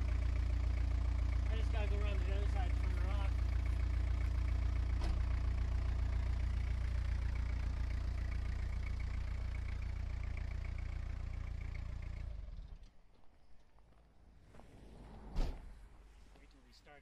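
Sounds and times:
truck engine idling with ticking: 0.0 - 12.8.

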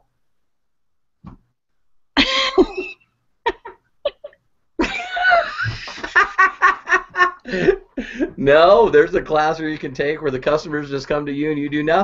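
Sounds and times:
person laughing heartily: 2.2 - 8.4.

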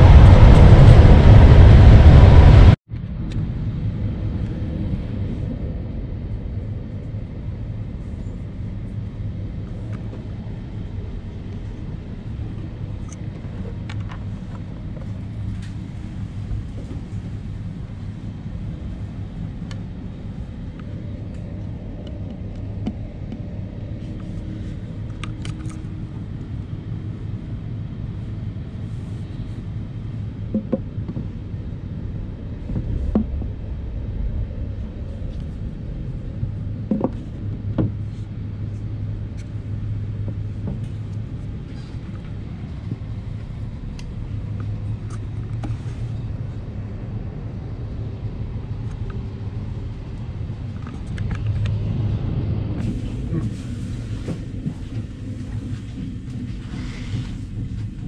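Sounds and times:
loud rushing noise: 0.0 - 5.5
train rumble: 0.0 - 58.0.

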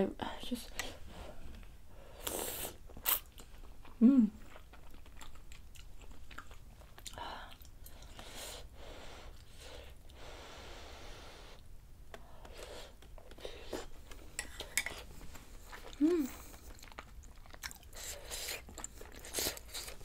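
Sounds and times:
chewing mouth noises: 3.0 - 8.2, 15.6 - 20.0.

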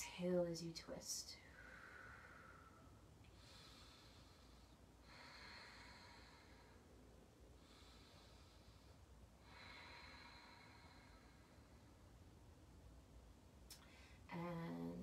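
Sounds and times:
slow breathing: 1.4 - 12.5, 13.7 - 14.3.

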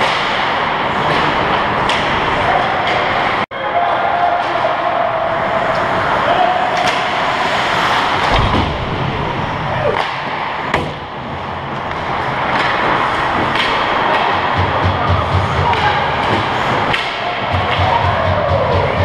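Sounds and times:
hockey sticks and puck clacking: 0.0 - 3.4, 5.6 - 8.6, 9.8 - 19.0
skates scraping ice: 5.4 - 8.6, 11.3 - 17.9
low thud: 8.2 - 10.0.

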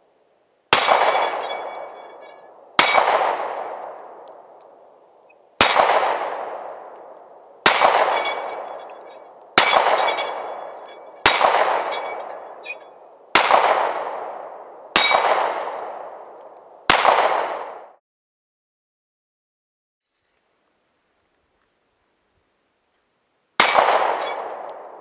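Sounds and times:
handgun shots with echo: 0.8 - 4.5, 5.6 - 12.8, 13.4 - 16.2, 16.9 - 17.8, 23.6 - 25.0.

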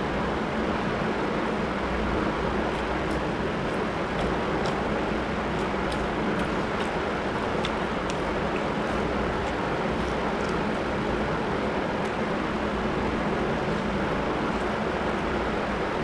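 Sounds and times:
chewing clicks: 2.7 - 10.9.

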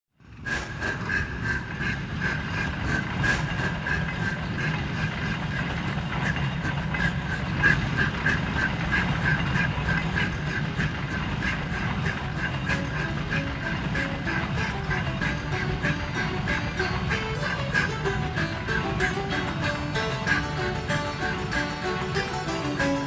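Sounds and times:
train rumbling on track: 0.2 - 23.0
wheels clicking and knocking: 0.2 - 23.0
thin pulsing tone: 6.2 - 23.0.

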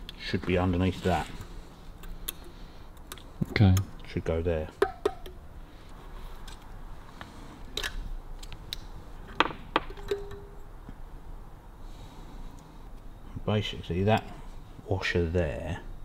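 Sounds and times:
metal ring: 9.8 - 10.6.

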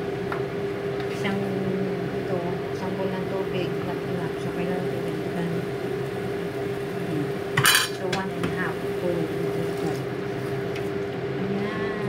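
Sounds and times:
steady low hum: 0.0 - 12.0
cookware clattering: 7.6 - 8.2.

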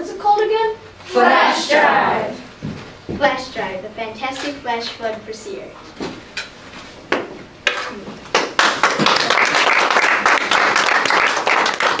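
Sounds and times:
audience applauding: 8.3 - 12.0.

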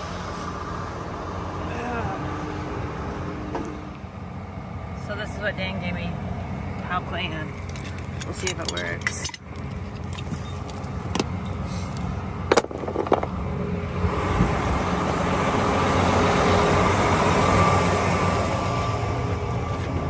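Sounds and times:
engine running: 0.0 - 20.0
tractor engine with faint whine: 0.0 - 20.0
chain and hooks clinking: 7.6 - 11.6.

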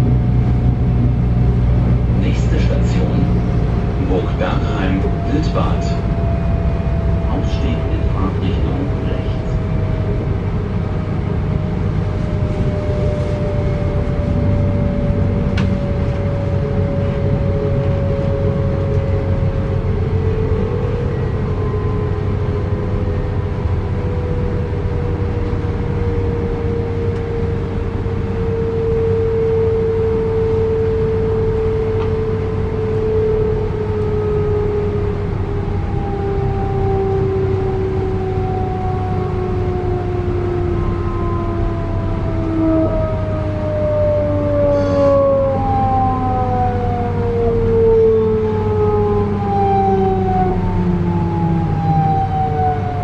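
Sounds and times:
train wheels rumbling on rails: 0.0 - 34.2.

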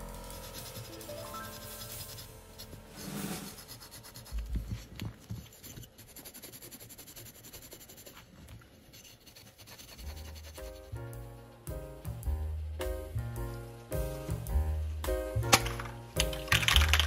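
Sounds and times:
scuff pad rubbing on metal: 0.2 - 8.3.

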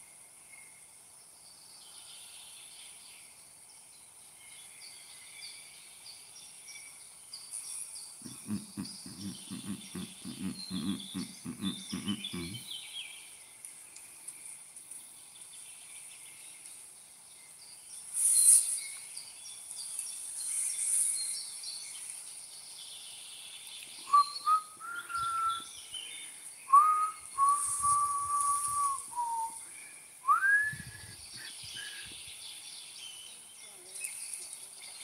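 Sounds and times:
bird chirps: 4.4 - 13.4, 17.4 - 35.0
person whistling: 8.2 - 12.6, 24.1 - 25.6, 26.7 - 29.6, 30.2 - 31.9
insect chorus: 24.0 - 34.6.

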